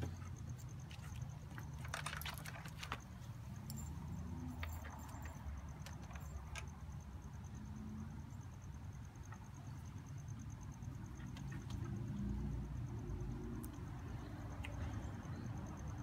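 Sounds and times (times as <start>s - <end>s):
wire leads clicking and rustling: 0.0s - 7.0s.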